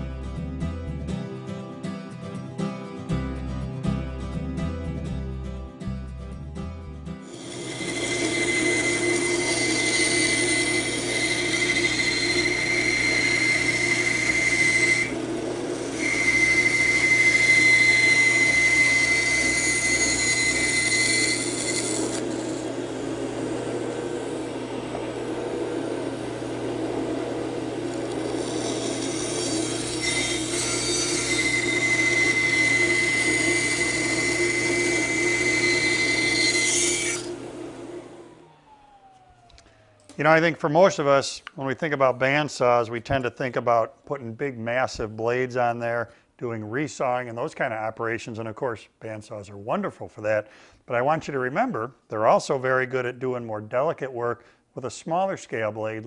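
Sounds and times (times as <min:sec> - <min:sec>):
high whine of saw cutting wood: 0:07.2 - 0:40.1
band saw motor hum: 0:07.2 - 0:40.6.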